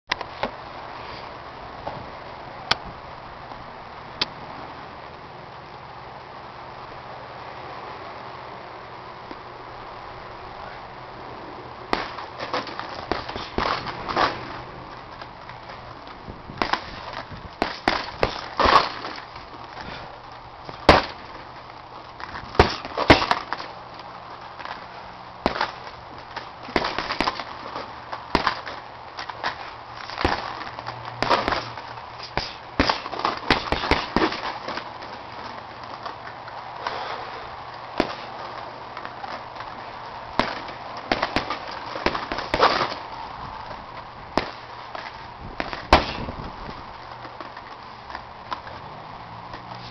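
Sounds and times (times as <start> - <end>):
gloves punching heavy bag: 11.9 - 14.4, 16.6 - 19.2, 20.7 - 21.4, 22.5 - 23.6, 25.4 - 27.5, 28.3 - 28.7, 29.5 - 34.8, 38.0 - 38.4, 40.4 - 43.0, 44.4 - 44.6, 45.6 - 46.7.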